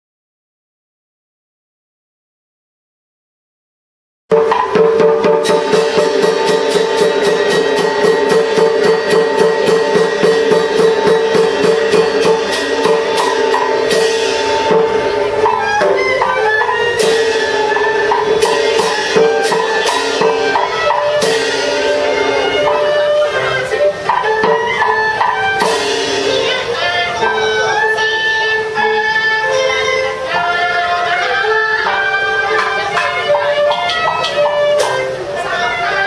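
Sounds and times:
cymbal crashes: 4.3s - 30.5s
sustained melodic instrument: 4.4s - 36.0s.

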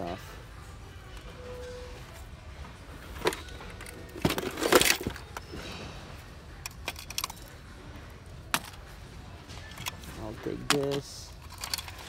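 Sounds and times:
metal lures rattling: 6.6s - 7.6s, 9.6s - 12.0s.

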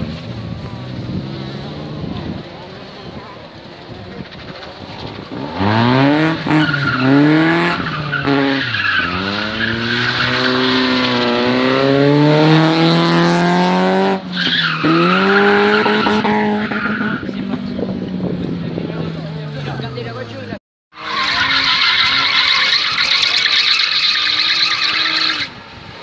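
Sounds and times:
car engine revving hard: 5.2s - 17.6s
tyres squealing: 20.9s - 25.6s.

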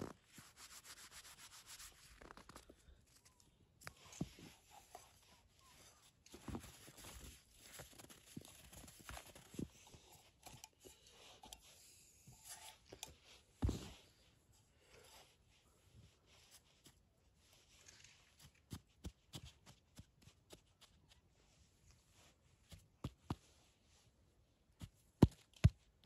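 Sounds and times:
quiet rustling: 0.0s - 18.9s.

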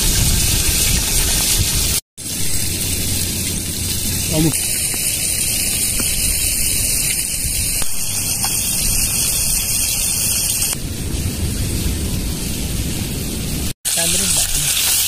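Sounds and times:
seafood sizzling in hot oil: 0.0s - 10.8s, 13.9s - 15.0s.

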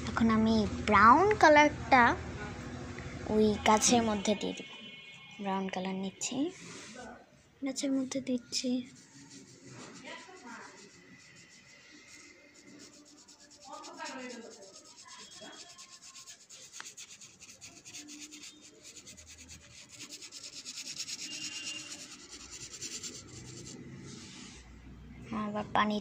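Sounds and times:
brush scrubbing on paper: 8.8s - 24.6s.

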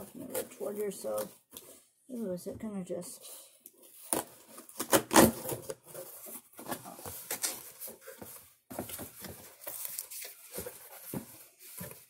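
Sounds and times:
cardboard and tape scraping: 3.9s - 12.0s.

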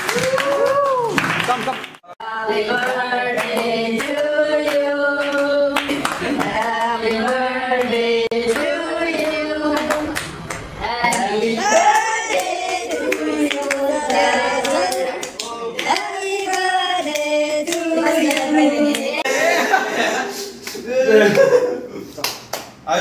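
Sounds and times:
hand-clapping: 0.0s - 2.0s, 13.1s - 19.1s, 22.2s - 22.8s
young men singing together: 2.2s - 19.3s.

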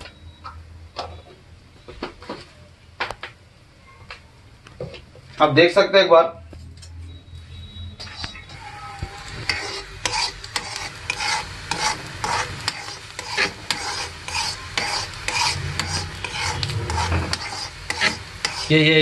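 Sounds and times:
spoon scraping iron pot: 8.0s - 18.8s
liquid sizzling: 8.0s - 19.0s.

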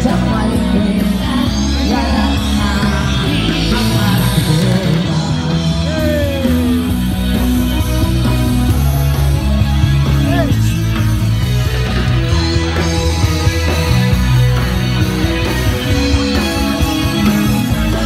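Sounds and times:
person singing: 0.0s - 7.1s
live rock band playing: 0.0s - 18.0s.

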